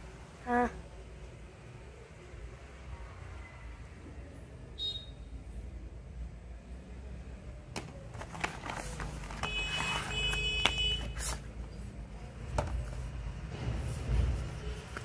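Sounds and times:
cardboard box being handled: 0:08.1 - 0:11.5.

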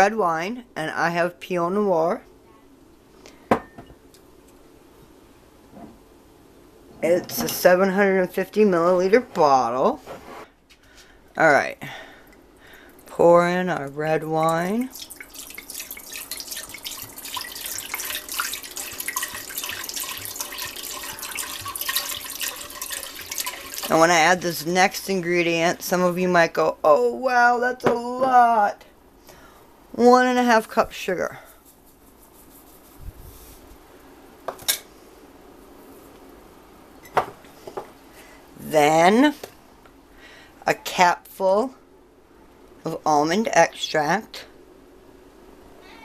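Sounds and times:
kitchenware clinking and knocking: 0:03.5 - 0:04.0
wine pouring into a pot: 0:13.8 - 0:24.6.

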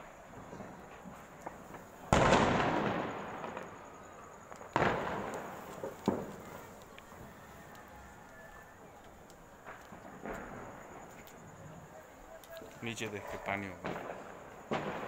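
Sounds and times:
firecracker bangs: 0:00.0 - 0:03.9, 0:04.5 - 0:07.2, 0:13.7 - 0:15.0.

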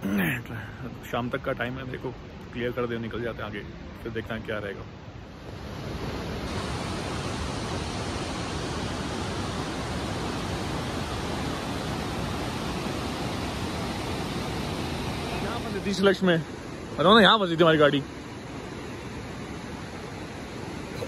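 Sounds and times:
river rushing over stones: 0:05.1 - 0:21.0.

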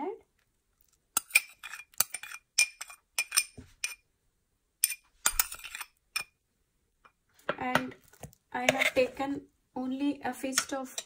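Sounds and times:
metal spoon clinking on glass bowl: 0:01.2 - 0:04.0.

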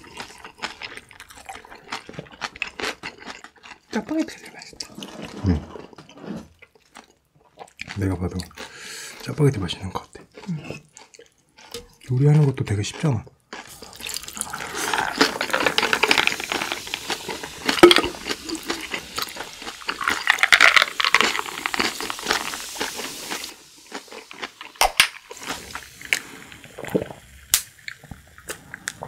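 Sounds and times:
beer pouring and fizzing: 0:13.7 - 0:28.5.

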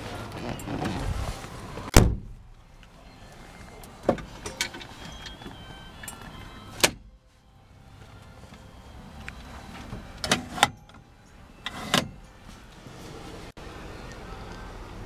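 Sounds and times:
loud thump: 0:01.9 - 0:02.4
metal glove box door snapping shut: 0:01.9 - 0:02.4, 0:10.2 - 0:11.0.

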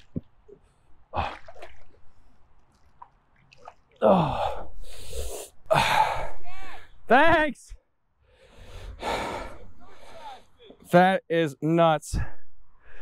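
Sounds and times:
water splashing and dripping: 0:00.0 - 0:04.6.

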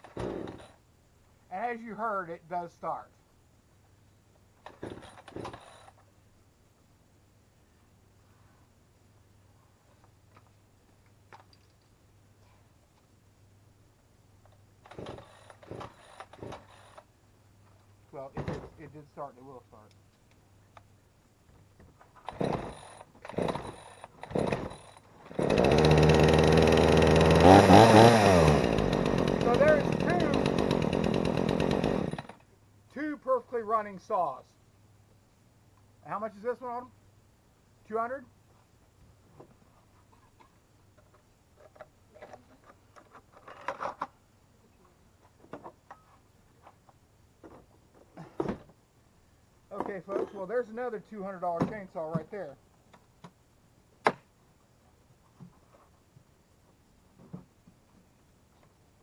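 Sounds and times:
chainsaw engine running: 0:22.3 - 0:32.4.

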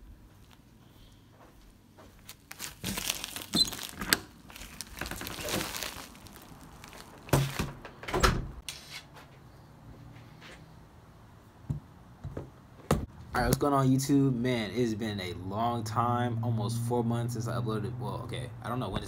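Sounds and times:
plastic pouch crinkling: 0:02.2 - 0:07.7.

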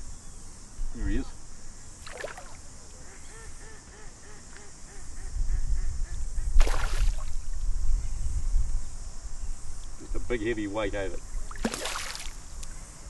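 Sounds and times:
fish thrashing and splashing: 0:02.0 - 0:02.6, 0:11.5 - 0:12.4.

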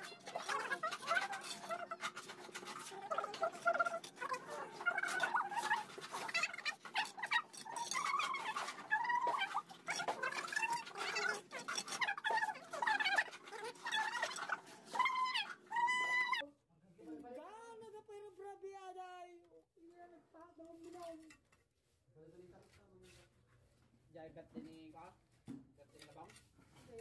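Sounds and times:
squeaky animal calls: 0:00.0 - 0:16.4
trowel scraping mortar: 0:00.0 - 0:16.4.

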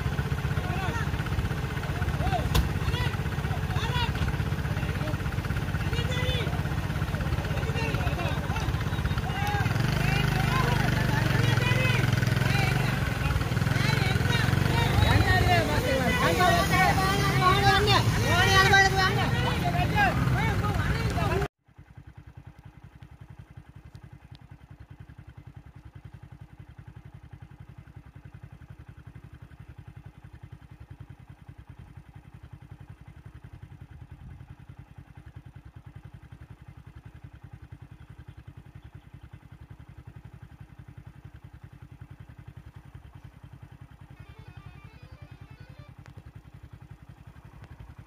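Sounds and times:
vehicle engine idling: 0:00.0 - 0:48.0
music: 0:44.2 - 0:46.0.

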